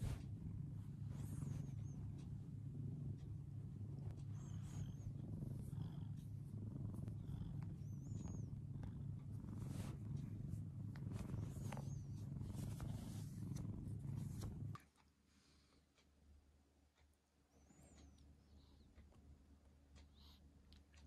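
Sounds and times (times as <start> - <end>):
cat purring loudly: 0.0 - 14.8.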